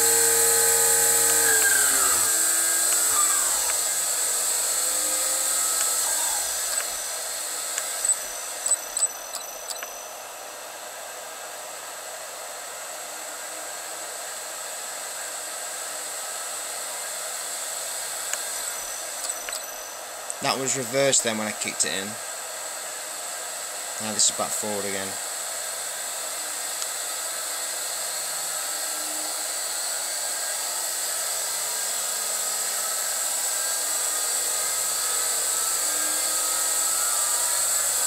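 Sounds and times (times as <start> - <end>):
electric motor whine: 0.0 - 38.0
sharp clicks: 1.1 - 4.0, 5.4 - 7.0.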